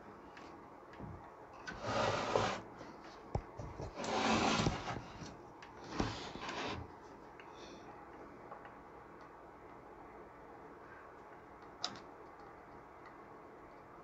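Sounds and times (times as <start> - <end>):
circuit board scraping on wood: 3.9 - 5.1.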